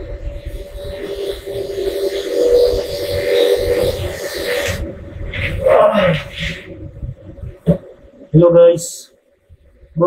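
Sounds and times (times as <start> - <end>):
high hiss: 0.0 - 6.9.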